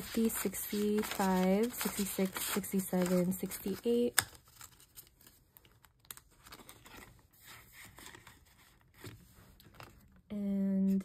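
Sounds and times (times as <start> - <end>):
banknotes rustling: 0.0 - 8.8.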